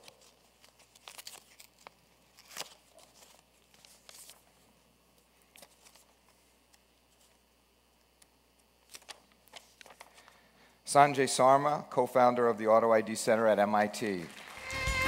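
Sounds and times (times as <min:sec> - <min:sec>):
paper crinkling and tearing: 0:00.0 - 0:04.6, 0:05.4 - 0:06.4, 0:08.8 - 0:10.4.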